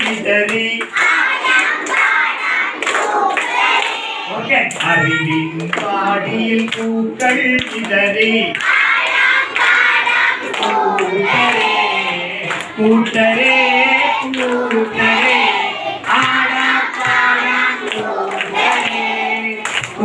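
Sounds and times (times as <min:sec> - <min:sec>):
man singing into a microphone: 0:00.0 - 0:01.0, 0:04.3 - 0:08.6, 0:11.0 - 0:20.0
children clapping: 0:00.0 - 0:20.0
children singing: 0:00.9 - 0:06.9, 0:08.4 - 0:20.0.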